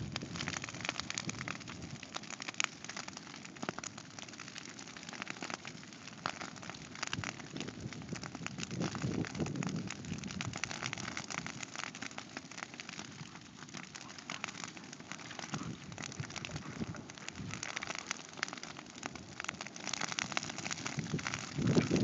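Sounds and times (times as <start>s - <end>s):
grass fire crackling: 0.0s - 22.0s.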